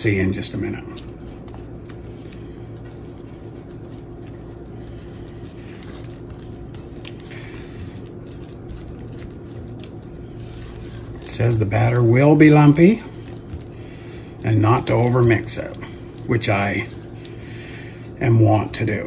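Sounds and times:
spatula squelching thick batter: 0:00.0 - 0:19.0
steady low hum: 0:00.0 - 0:19.0.

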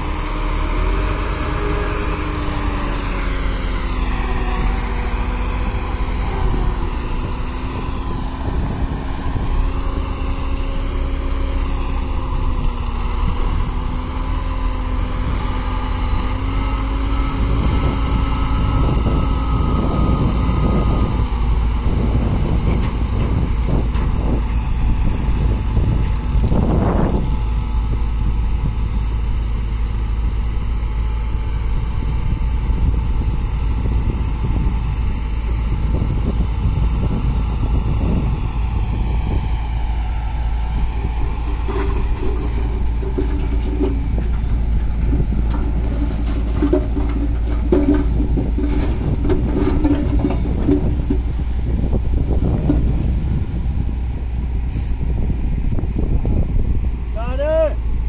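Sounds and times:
diesel tractor engines running: 0:00.0 - 0:58.0
earth sliding off trolley: 0:40.8 - 0:53.1.

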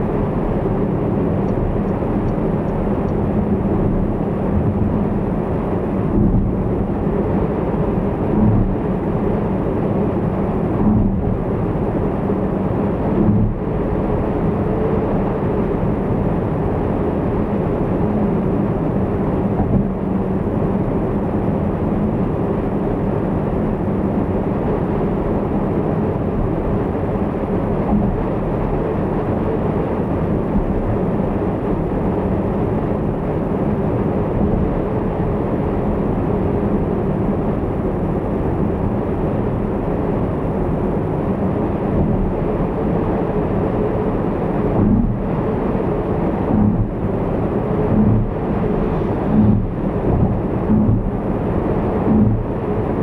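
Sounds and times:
car engine hum: 0:00.0 - 0:53.0
tyre and road noise: 0:41.6 - 0:53.0.

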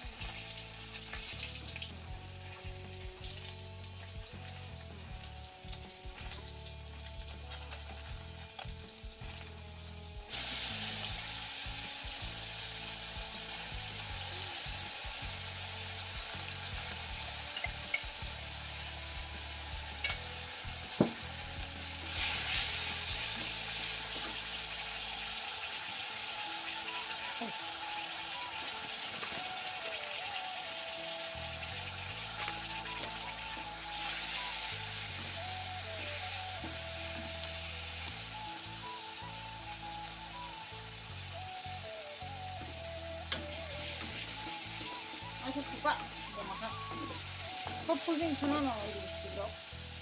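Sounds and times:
fish frying in hot oil: 0:00.0 - 0:50.0
metal spatula tapping pan: 0:20.0 - 0:20.3.

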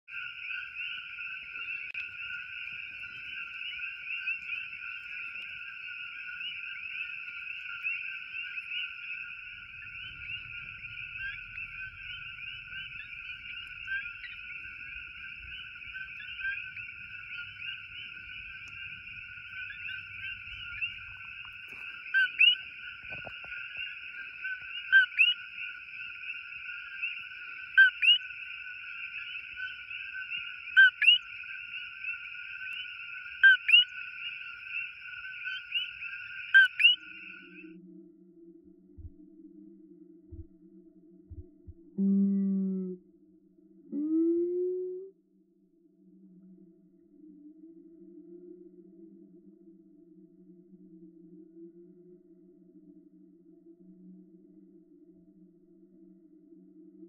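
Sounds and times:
nearby coqui frog calling loudly: 0:00.1 - 0:37.7
chorus of coqui frogs: 0:00.1 - 0:57.0.

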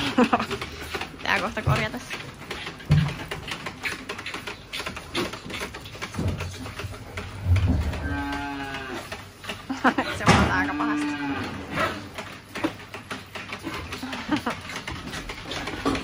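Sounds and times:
calves mooing: 0:07.6 - 0:09.2, 0:10.2 - 0:12.1.

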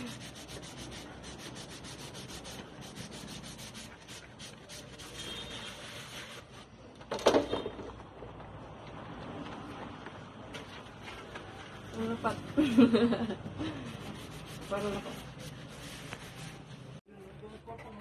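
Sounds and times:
sponge scrubbing plates: 0:00.0 - 0:06.5, 0:13.8 - 0:16.9.

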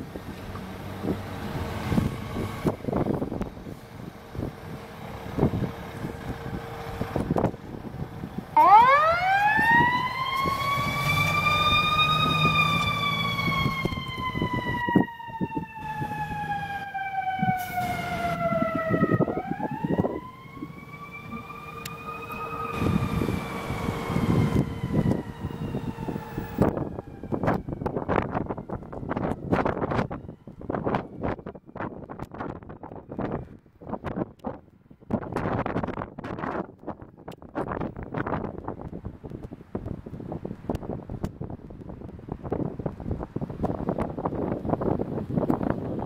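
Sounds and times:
truck engine rumbling: 0:00.0 - 0:46.0
fire engine siren winding: 0:08.6 - 0:31.6.

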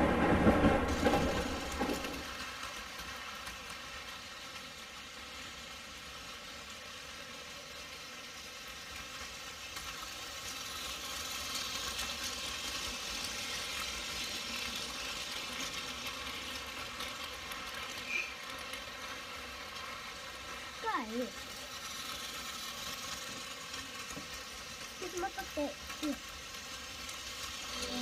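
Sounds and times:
toy train motors whirring: 0:00.9 - 0:28.0.

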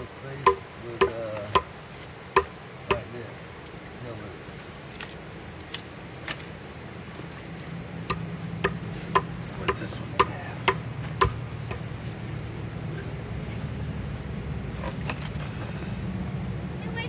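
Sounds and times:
sharp knocks: 0:00.4 - 0:01.7, 0:02.4 - 0:03.1, 0:08.1 - 0:11.8
steady low hum: 0:04.3 - 0:17.0.

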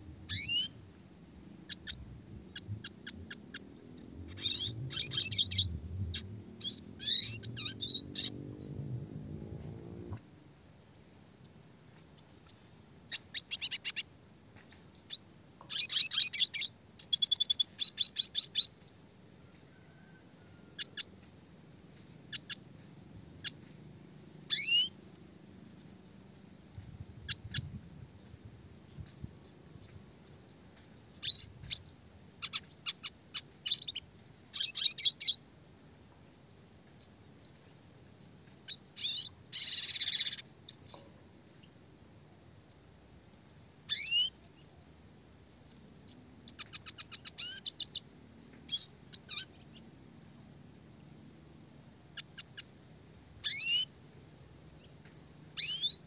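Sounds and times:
bird chirping and trilling: 0:00.3 - 0:00.8, 0:01.7 - 0:08.8, 0:11.4 - 0:14.0, 0:14.7 - 0:18.7, 0:22.3 - 0:23.6, 0:24.5 - 0:24.9, 0:31.2 - 0:35.4, 0:38.2 - 0:41.1, 0:43.9 - 0:44.4, 0:45.7 - 0:48.0, 0:48.7 - 0:49.7, 0:52.2 - 0:52.7, 0:53.4 - 0:53.9, 0:55.6 - 0:56.0.

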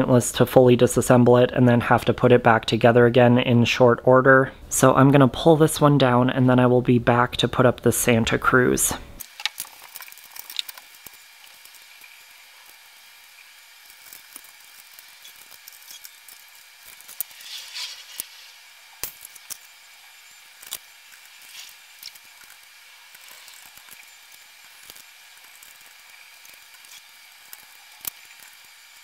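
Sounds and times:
rustling clatter: 0:15.2 - 0:19.6.

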